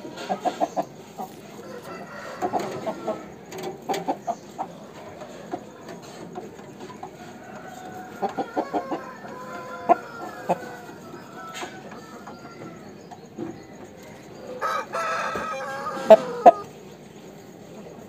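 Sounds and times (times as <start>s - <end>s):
rooster clucking: 0.0s - 16.7s
rooster drawn-out calls: 0.2s - 3.5s, 7.2s - 13.0s, 14.2s - 16.7s.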